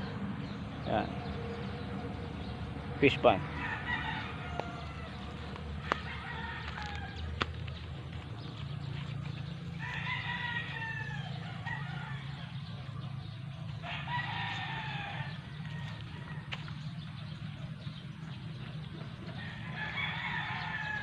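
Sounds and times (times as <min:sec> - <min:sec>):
rooster crowing: 0:03.4 - 0:07.4, 0:09.7 - 0:13.0, 0:13.8 - 0:16.6, 0:19.3 - 0:21.0.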